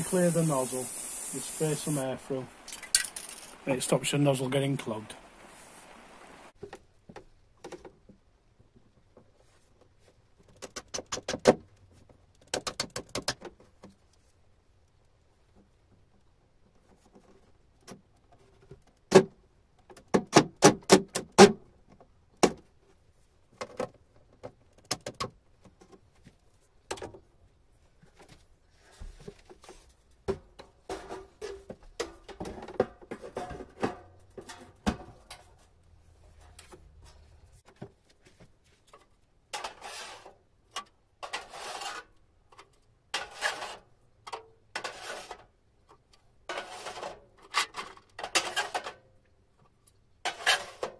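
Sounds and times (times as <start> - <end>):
sharp knocks and clatter: 30.2 - 35.6.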